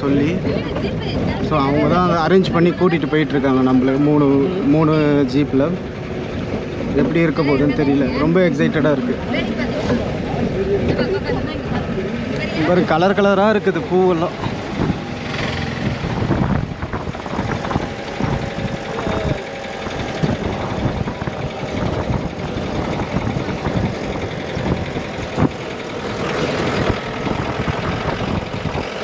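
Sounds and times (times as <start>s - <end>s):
jeep engine running: 0.0s - 29.0s
vehicle knocks and rattles: 14.3s - 29.0s.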